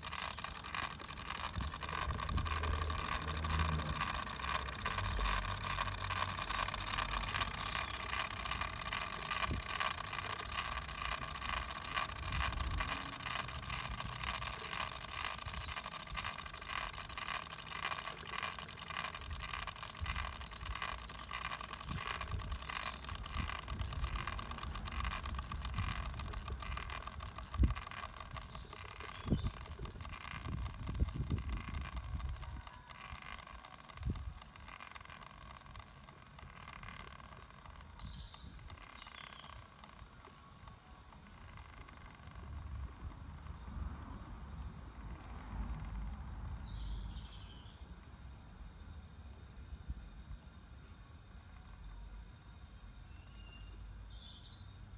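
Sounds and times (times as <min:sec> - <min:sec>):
model steam engine chuffing: 0:00.0 - 0:43.7.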